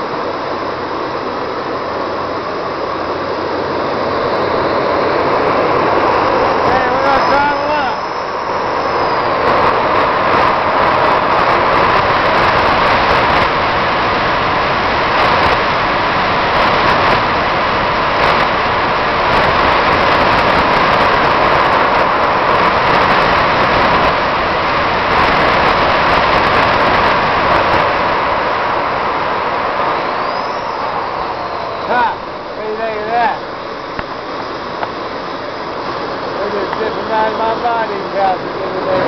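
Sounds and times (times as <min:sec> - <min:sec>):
jet turbines roaring: 0:00.0 - 0:39.0.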